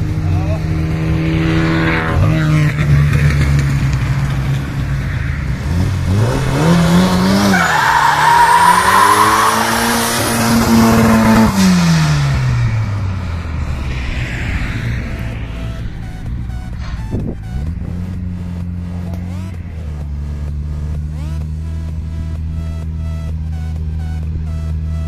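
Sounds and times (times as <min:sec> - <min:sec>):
car engine revving: 0:00.0 - 0:25.0
tyre squeal: 0:07.4 - 0:09.9.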